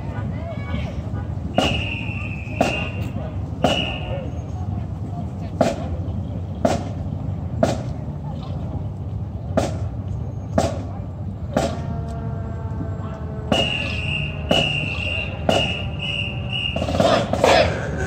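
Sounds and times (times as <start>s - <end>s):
drumline steady beat: 1.6s - 4.2s, 5.5s - 6.0s, 6.6s - 8.0s, 9.5s - 11.9s, 13.5s - 18.0s.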